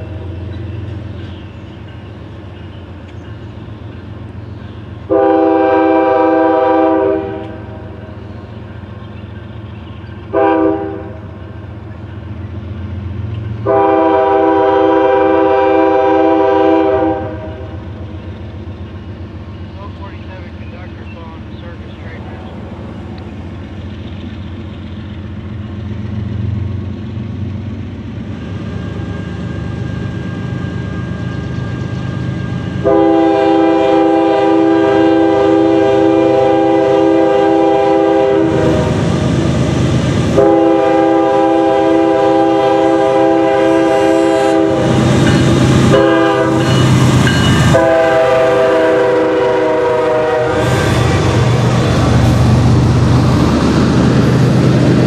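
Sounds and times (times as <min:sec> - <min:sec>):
diesel locomotive engine rumble: 0:00.0 - 0:55.0
train wheels rumbling on rails: 0:00.0 - 0:55.0
train air horn blasts: 0:05.1 - 0:07.9, 0:10.3 - 0:11.4, 0:13.6 - 0:17.8, 0:32.6 - 0:39.1, 0:40.2 - 0:51.4.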